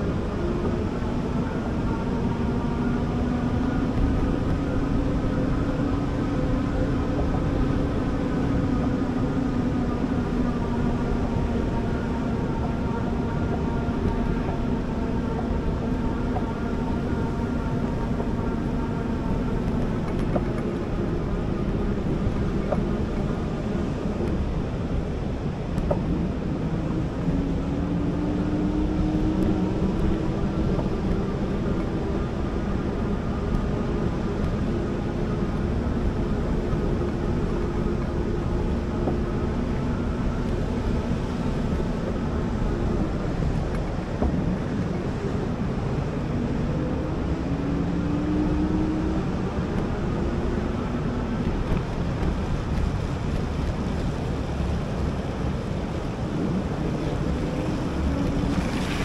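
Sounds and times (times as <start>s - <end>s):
wind on microphone: 0.0s - 59.0s
surf washing: 48.4s - 59.0s.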